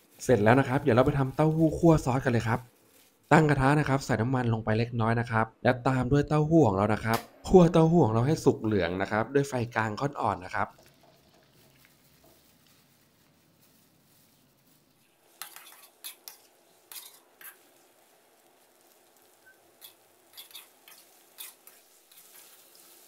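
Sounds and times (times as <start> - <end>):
tofu frying in oil: 10.4 - 13.6, 14.5 - 23.0
metal spatula scraping wok: 15.3 - 23.0.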